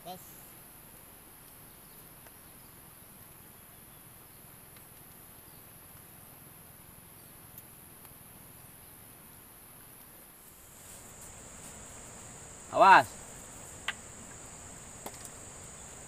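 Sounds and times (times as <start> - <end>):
insects droning: 10.4 - 16.0.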